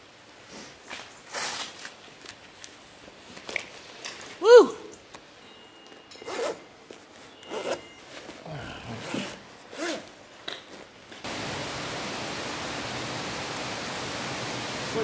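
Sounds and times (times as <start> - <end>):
zipping and rubbing of dry suits: 6.2 - 6.6, 7.2 - 10.9
rushing hiss of flowing water: 11.2 - 15.0.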